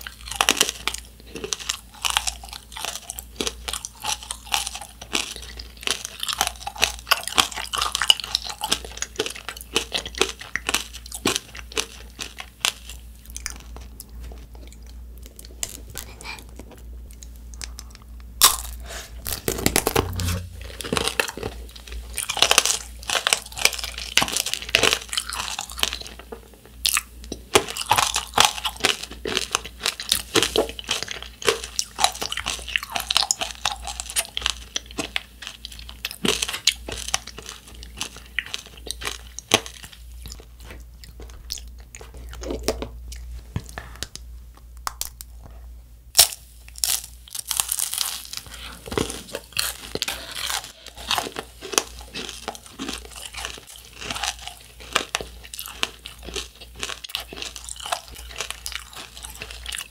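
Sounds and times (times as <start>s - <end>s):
chewing crunchy candy shell: 0.0s - 59.9s
loud crack of candy: 18.4s - 26.2s, 46.2s - 59.9s.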